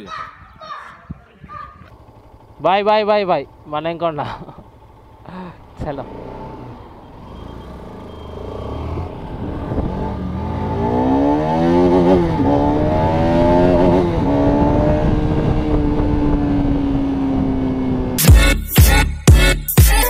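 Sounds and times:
motorcycle engine accelerating: 0:00.0 - 0:18.2
music with sharp beats: 0:18.2 - 0:20.0.

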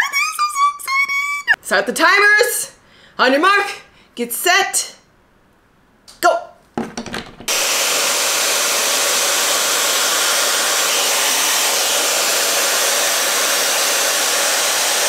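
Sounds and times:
hair dryer running: 0:07.5 - 0:15.0.

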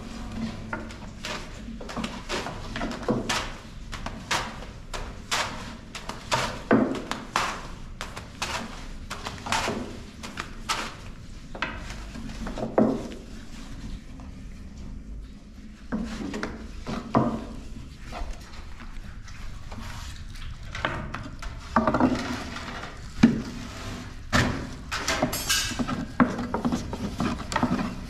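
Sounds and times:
dough slapping: 0:00.7 - 0:13.3.

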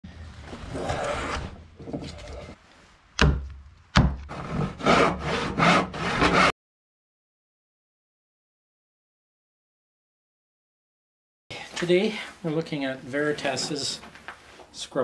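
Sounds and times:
hand saw cutting wood: 0:00.7 - 0:02.6, 0:04.2 - 0:06.5
sharp knocks: 0:03.2 - 0:04.3.

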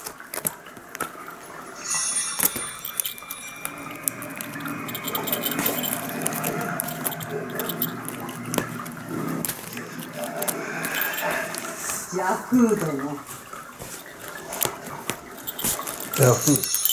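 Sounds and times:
low steady hum: 0:01.6 - 0:13.6.

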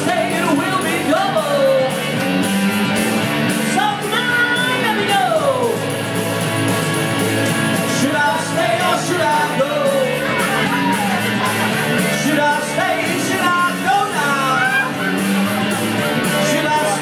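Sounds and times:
person singing: 0:00.0 - 0:02.2, 0:07.8 - 0:17.0
amplified electric guitar: 0:00.0 - 0:17.0
steady beat: 0:00.0 - 0:17.0.

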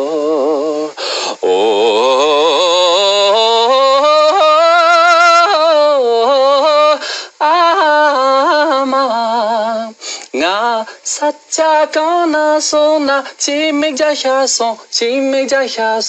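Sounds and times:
man singing with vibrato: 0:00.0 - 0:16.0
short breath: 0:00.9 - 0:01.4, 0:07.0 - 0:07.4, 0:10.0 - 0:10.3.

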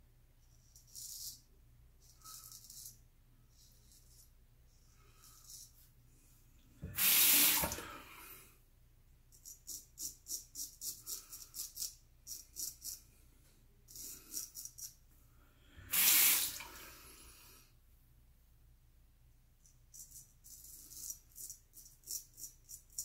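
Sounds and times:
sink tap running: 0:06.8 - 0:08.0, 0:15.9 - 0:16.7.

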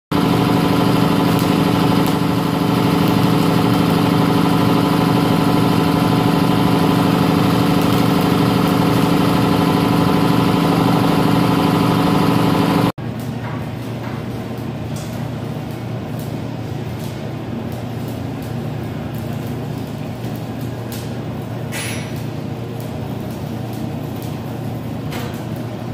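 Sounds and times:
engine drone: 0:00.2 - 0:12.9.

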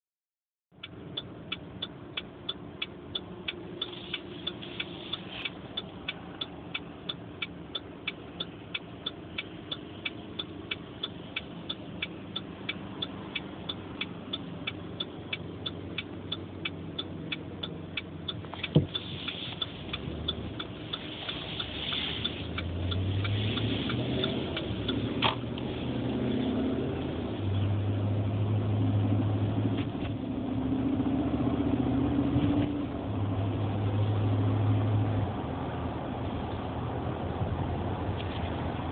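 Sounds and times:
car engine: 0:00.7 - 0:38.9
road noise inside car: 0:00.7 - 0:38.9
light ticking: 0:00.8 - 0:27.6.

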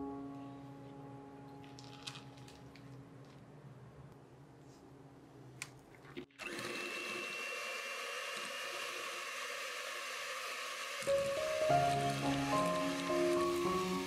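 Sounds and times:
electric hand mixer whining: 0:06.3 - 0:14.0.

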